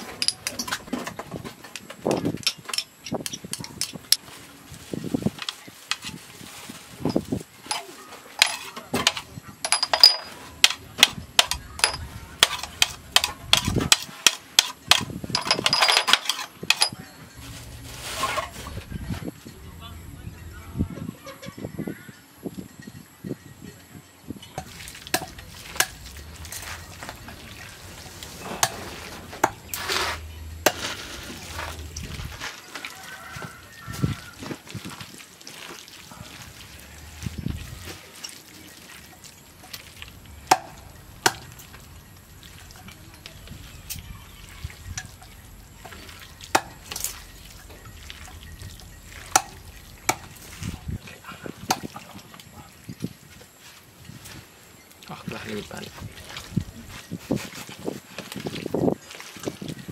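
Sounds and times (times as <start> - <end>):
hands squelching raw meat: 24.6 - 39.1, 56.1 - 59.8
wet squelching of meat by hand: 31.8 - 38.1.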